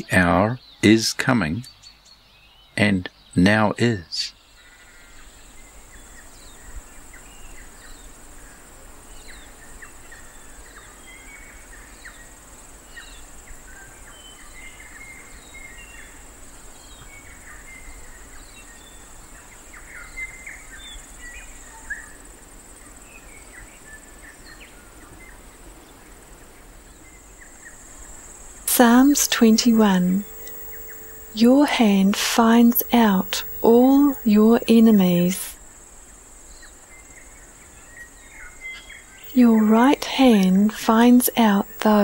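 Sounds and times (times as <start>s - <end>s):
insects chirring: 27.9s - 35.5s, 39.2s - 42.0s.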